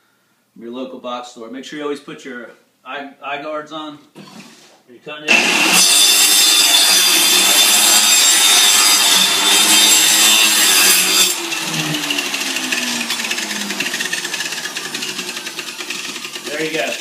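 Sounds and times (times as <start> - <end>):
electric saw whining: 5.3 - 17.0.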